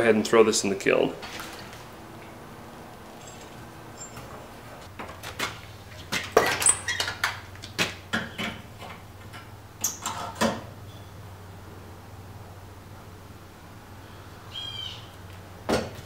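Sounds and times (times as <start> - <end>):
low steady hum: 0.0 - 6.3
metal clinking and scraping: 1.2 - 7.3.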